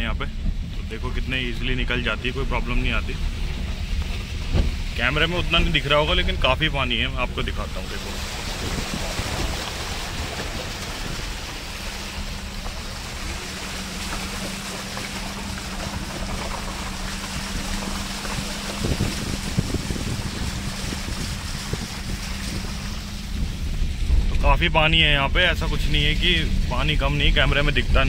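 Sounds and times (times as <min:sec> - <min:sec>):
car engine hum: 0:00.0 - 0:28.0
tyres splashing through water: 0:00.0 - 0:28.0.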